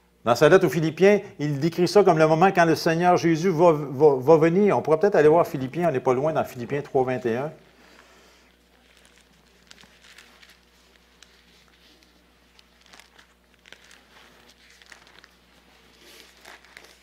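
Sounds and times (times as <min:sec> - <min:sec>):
low electrical hum: 0:00.0 - 0:17.0
pages being leafed through: 0:07.8 - 0:17.0.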